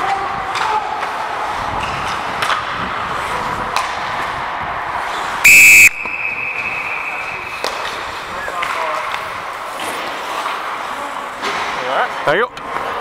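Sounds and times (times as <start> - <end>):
referee's whistle blast: 5.5 - 7.6.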